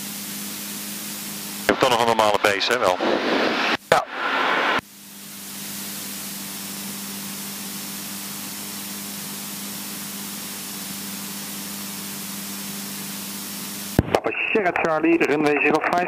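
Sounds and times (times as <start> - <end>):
aircraft cabin airflow and engine: 0.0 - 14.0
steady low hum: 0.0 - 16.0.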